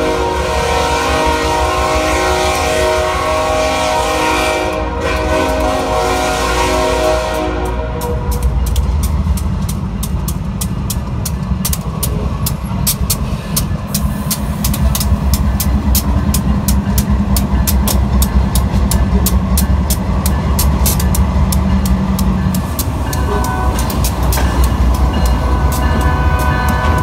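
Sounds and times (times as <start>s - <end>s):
locomotive horn chord: 0.0s - 8.6s, 23.1s - 24.0s, 25.4s - 27.0s
train wheels clicking over rail joints: 7.3s - 27.0s.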